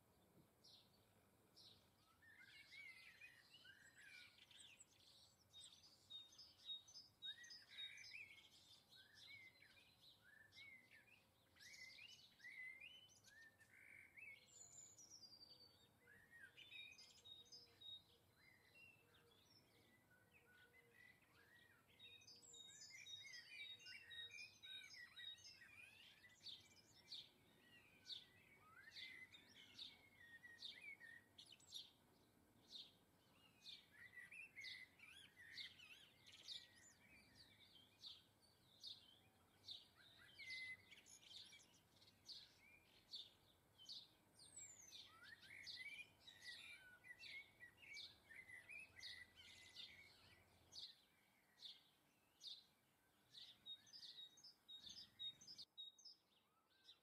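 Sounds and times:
songbirds chirping: 0:00.0 - 0:57.0.

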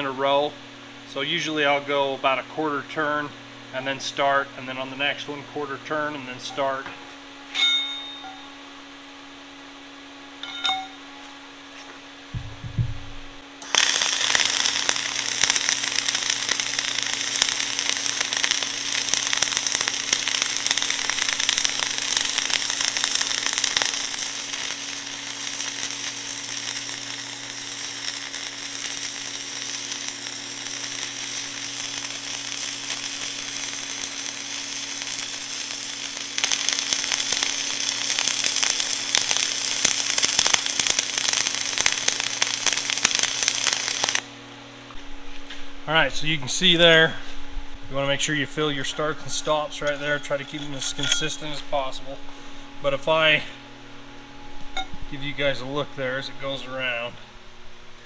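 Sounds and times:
steady low hum: 0:00.0 - 0:58.0
welding arc burning: 0:12.3 - 0:44.4, 0:47.9 - 0:53.4.

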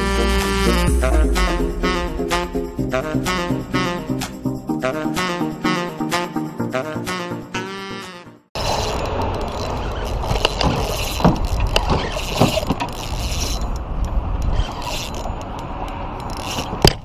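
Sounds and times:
low steady rumble: 0:00.0 - 0:05.6
fishing reel gear whirring: 0:08.6 - 0:16.8
sharp reel clicks: 0:08.6 - 0:17.0.

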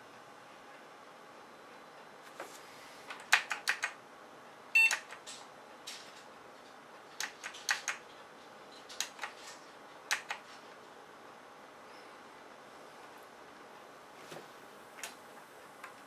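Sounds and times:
keyboard key clicks: 0:10.1 - 0:10.4.

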